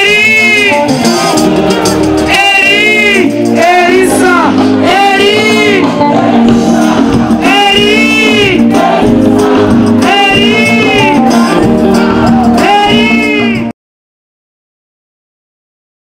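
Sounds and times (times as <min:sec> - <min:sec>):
bass and band: 0:00.0 - 0:13.7
person singing: 0:00.0 - 0:13.7
pop song through loud pa: 0:00.0 - 0:13.7.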